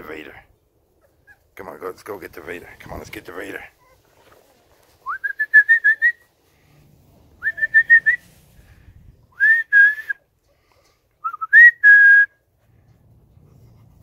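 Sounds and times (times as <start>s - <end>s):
person whistling short high notes: 9.4s - 10.2s.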